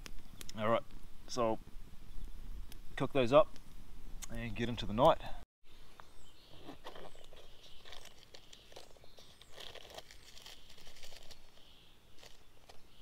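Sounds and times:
fabric pouch rustling: 0:06.6 - 0:11.6
foil packet crinkling: 0:06.8 - 0:12.8.

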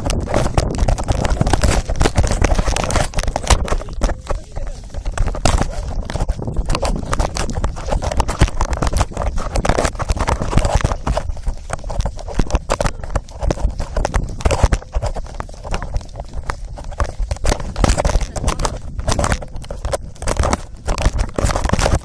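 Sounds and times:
knocks and scraping on microphone: 0:00.0 - 0:22.0.

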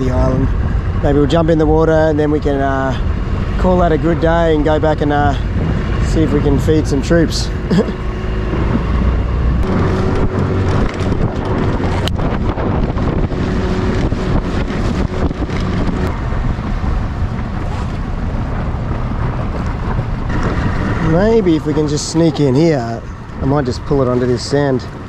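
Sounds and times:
outboard motor running: 0:00.0 - 0:25.0
wind buffeting microphone: 0:00.0 - 0:25.0.

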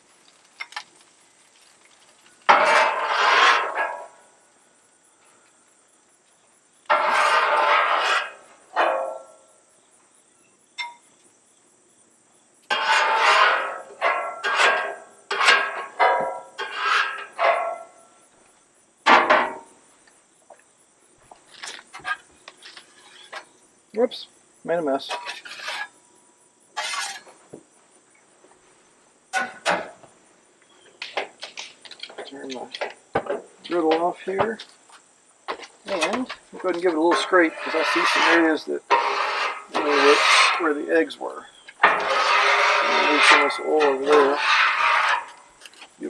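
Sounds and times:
metal spatula scraping griddle: 0:00.4 - 0:04.2, 0:06.9 - 0:09.3, 0:12.6 - 0:18.1, 0:21.9 - 0:23.5, 0:25.0 - 0:26.0, 0:26.8 - 0:27.4, 0:29.3 - 0:29.9, 0:35.9 - 0:46.0.

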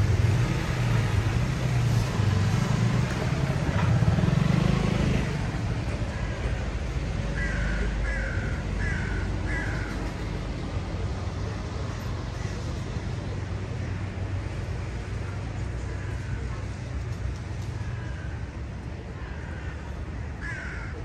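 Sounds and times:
road traffic engine rumble: 0:00.0 - 0:21.0
crow cawing: 0:07.3 - 0:10.0, 0:19.2 - 0:21.0.

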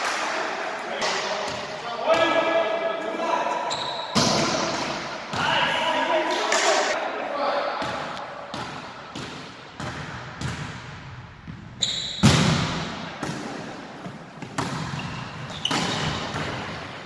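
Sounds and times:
volleyball thumps echoing: 0:01.0 - 0:02.6, 0:04.1 - 0:05.8, 0:07.7 - 0:17.0
shoe squeak: 0:03.6 - 0:04.2, 0:11.8 - 0:12.2, 0:14.9 - 0:16.3.

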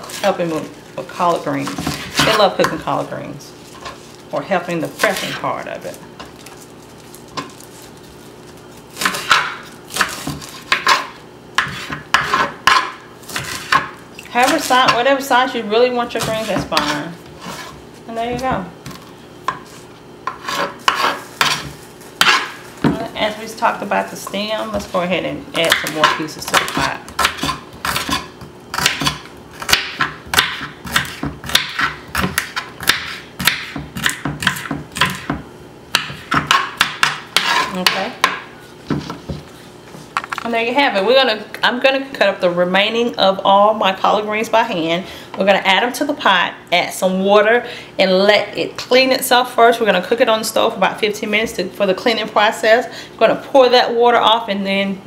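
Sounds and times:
knife chopping leaves on wooden board: 0:00.0 - 0:03.0, 0:07.2 - 0:15.0, 0:16.1 - 0:23.1, 0:25.6 - 0:39.5.

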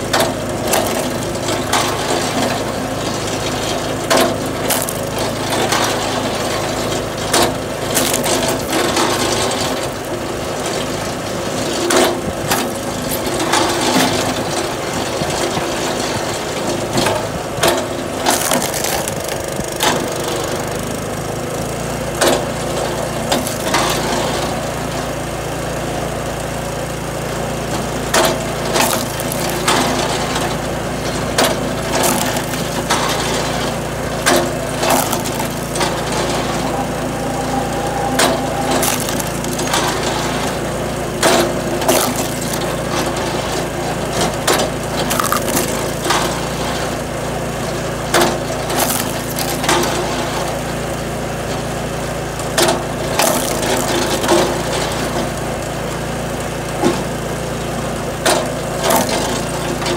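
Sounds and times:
small engine running steadily: 0:00.0 - 0:59.9
wood splitting cracks: 0:00.1 - 0:02.5, 0:03.4 - 0:06.6, 0:07.3 - 0:09.3, 0:12.0 - 0:14.3, 0:17.0 - 0:20.3, 0:23.2 - 0:24.1, 0:28.1 - 0:40.1, 0:41.2 - 0:46.9, 0:48.1 - 0:50.2, 0:52.6 - 0:54.5, 0:58.3 - 0:59.6.

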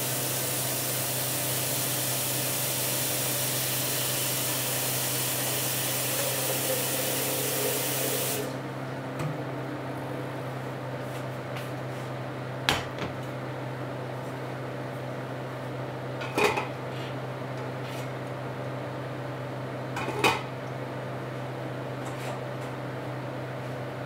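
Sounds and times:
steady low hum: 0:08.5 - 0:12.3.

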